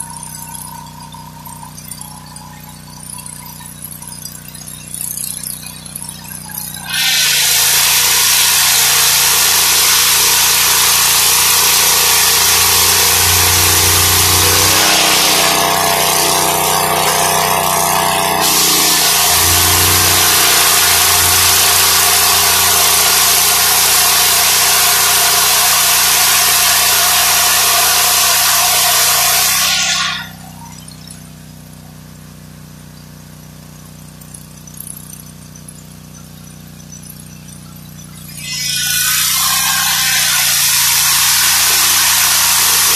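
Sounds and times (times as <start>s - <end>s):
engine droning: 0.0s - 40.6s
saw blade cutting wood: 6.6s - 30.6s, 38.3s - 42.9s.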